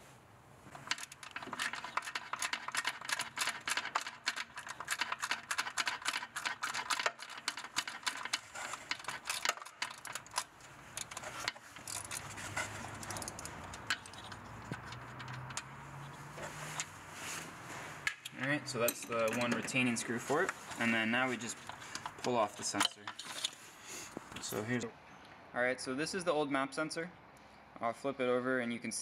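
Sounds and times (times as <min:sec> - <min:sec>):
ratchet clicking: 0:00.8 - 0:15.7.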